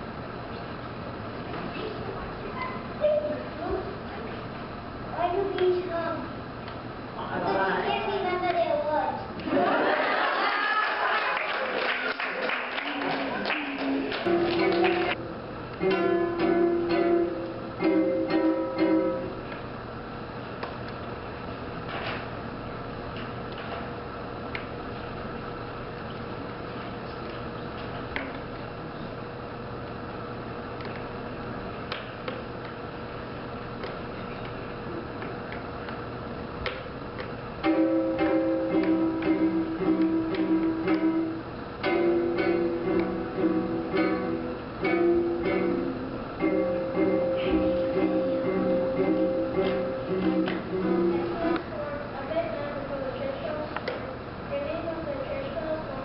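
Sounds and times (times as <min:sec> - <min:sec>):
faint hum: 0:00.0 - 0:56.0
acoustic guitar plucking: 0:13.8 - 0:15.2, 0:15.8 - 0:19.4, 0:37.6 - 0:51.6.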